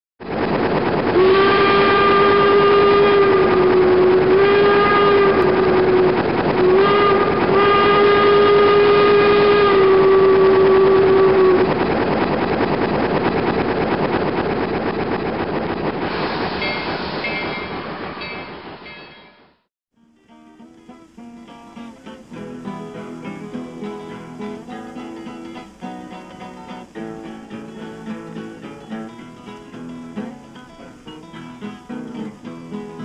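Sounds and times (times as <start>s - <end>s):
train rumble: 0.2s - 19.6s, 21.6s - 33.0s
steam locomotive whistle blasts: 1.1s - 11.7s.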